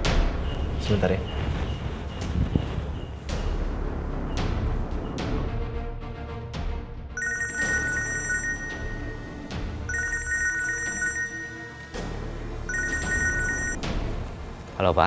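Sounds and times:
phone ringtone: 7.2 - 13.8.

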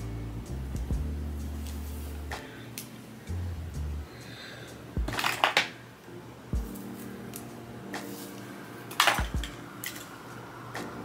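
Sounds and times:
deep bass kicks: 0.0 - 1.4
hip-hop music: 0.0 - 5.3, 6.5 - 11.0.

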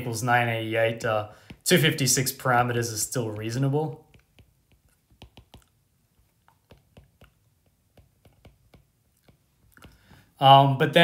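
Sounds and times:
stylus tapping on glass screen: 4.0 - 5.7, 6.4 - 10.2.

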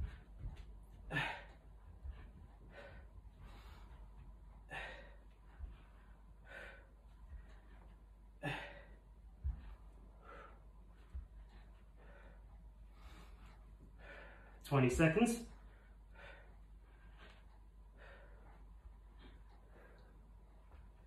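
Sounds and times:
dull low thumps: 0.0 - 8.4
man breathing hard: 0.0 - 14.6, 15.5 - 21.0.

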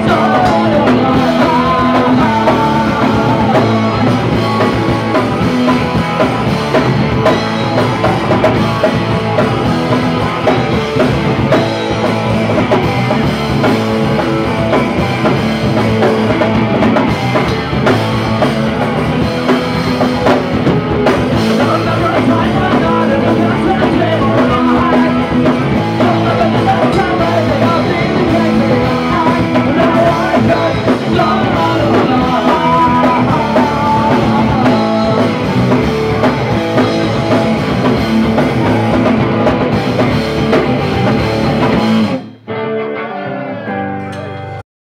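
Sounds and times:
person singing: 0.0 - 5.5, 21.4 - 37.6
drum kit: 0.0 - 42.5
electric guitars: 0.0 - 44.6.

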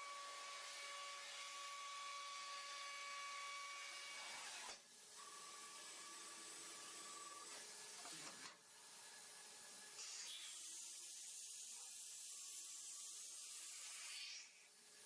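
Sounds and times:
machine spindle hiss: 10.0 - 14.7.

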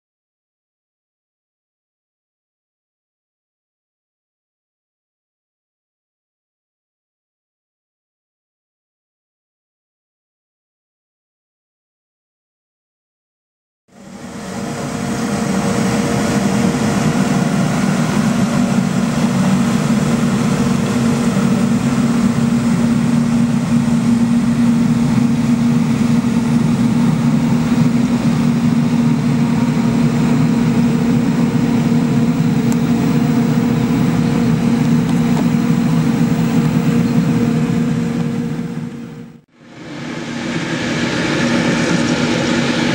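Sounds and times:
street sweeper truck running: 14.0 - 42.9.

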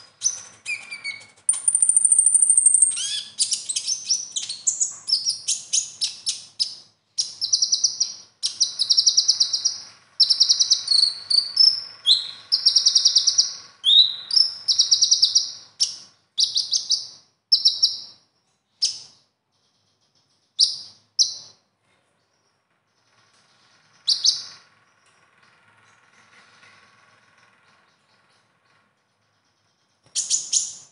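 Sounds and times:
sunbird singing high trills: 0.0 - 18.2, 23.5 - 24.6, 30.0 - 30.9.

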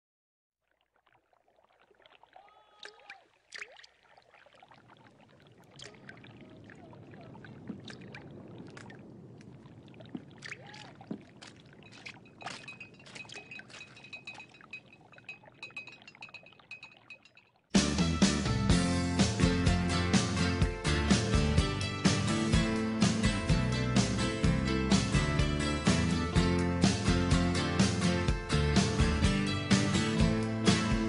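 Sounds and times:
aquarium water trickling: 0.6 - 17.7.

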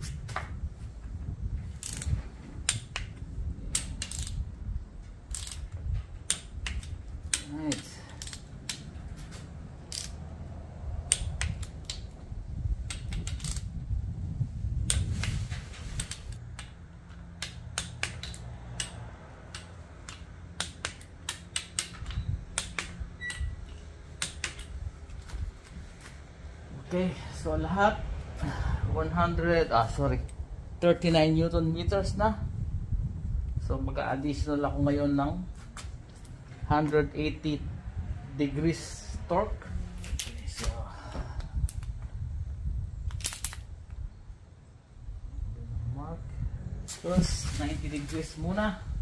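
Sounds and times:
torque wrench ratcheting clicks: 1.8 - 3.1, 3.7 - 4.4, 5.3 - 8.9, 9.9 - 10.2, 11.1 - 12.1, 12.9 - 13.7, 17.4 - 24.7.

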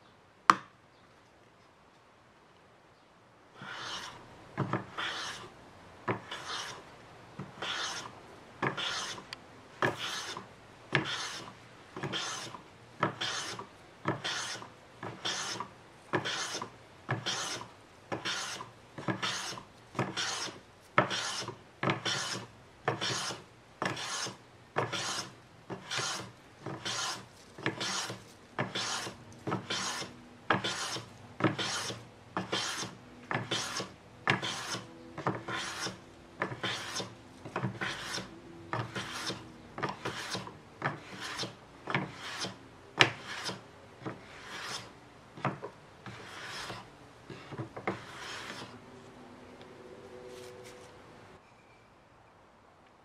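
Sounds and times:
hand plane swishing cuts on wood: 3.6 - 5.5, 6.2 - 6.8, 7.6 - 9.2, 9.8 - 10.4, 11.0 - 44.9, 45.5 - 48.8.

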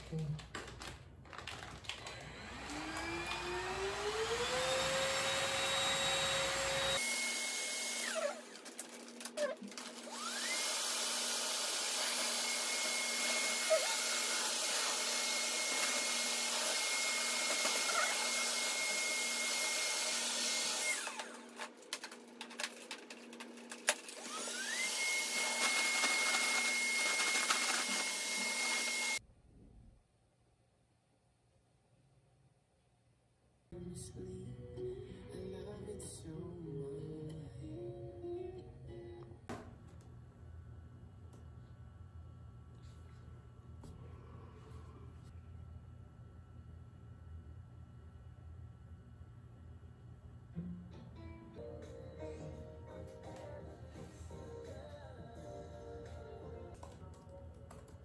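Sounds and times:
small electric motor whirring: 2.2 - 21.9, 22.5 - 29.2.

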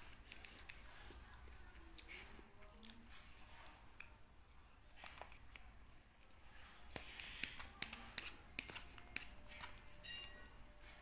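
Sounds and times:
soft chewing clicks: 0.4 - 6.4.

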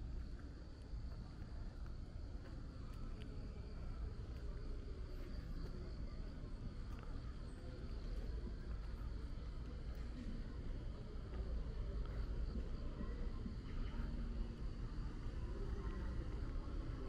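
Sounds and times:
low background rumble: 0.0 - 17.0.

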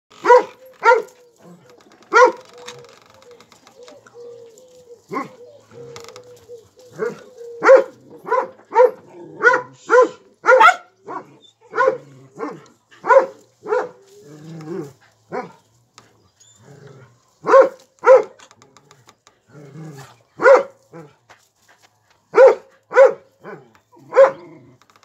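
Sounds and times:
dog barking: 0.2 - 1.2, 2.1 - 2.5, 7.0 - 14.0, 17.4 - 18.4, 20.4 - 20.8, 22.3 - 24.5.

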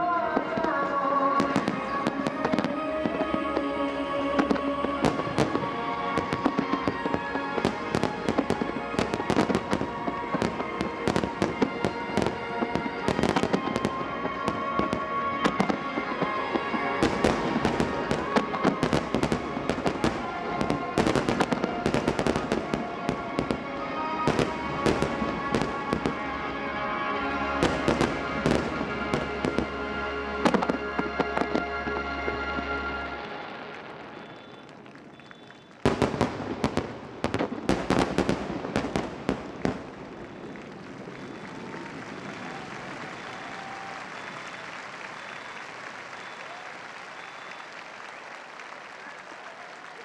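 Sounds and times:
music over loudspeakers: 0.0 - 33.7
fireworks bangs and crackles: 0.0 - 50.0.

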